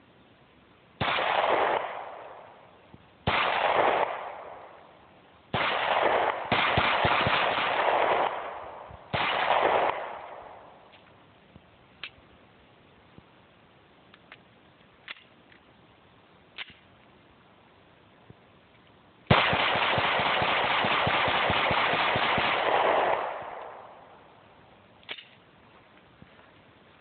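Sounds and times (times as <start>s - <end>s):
pistol rapid-fire shots: 1.0s - 2.6s, 3.2s - 4.8s, 5.5s - 10.8s, 19.3s - 24.2s.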